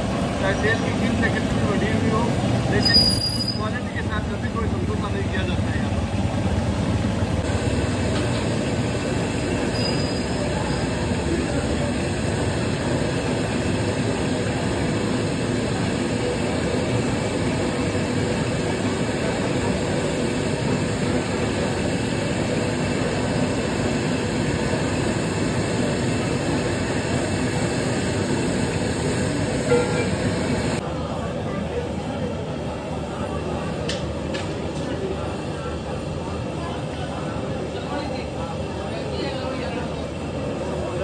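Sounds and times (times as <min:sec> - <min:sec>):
oil deep-frying hiss: 0:07.4 - 0:30.8.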